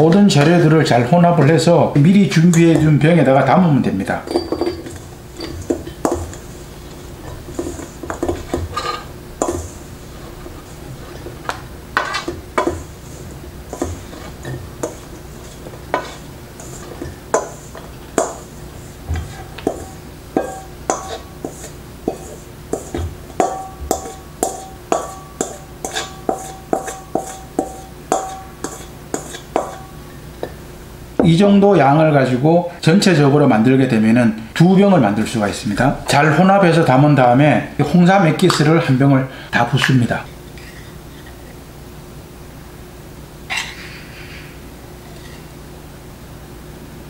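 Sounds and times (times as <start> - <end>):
metal bowl knocking and clinking: 4.2 - 6.4, 19.1 - 30.6.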